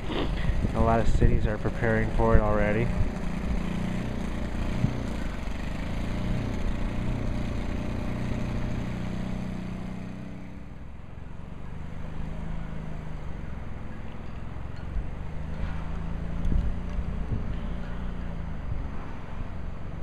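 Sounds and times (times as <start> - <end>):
vehicle engine rumbling: 0.0 - 20.0.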